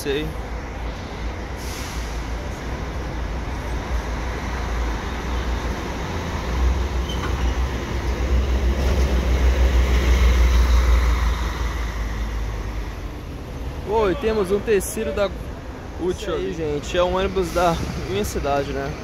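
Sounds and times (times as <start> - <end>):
coach diesel engine rumbling past: 2.0 - 19.0.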